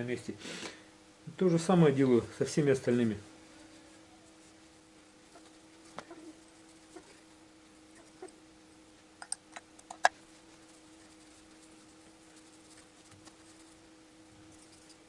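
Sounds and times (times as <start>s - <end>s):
rag rubbing: 10.2s - 15.0s.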